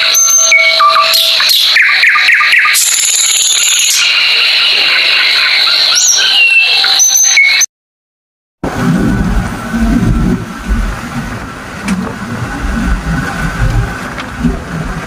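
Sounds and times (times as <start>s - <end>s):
birds chirping: 0.1s - 7.7s.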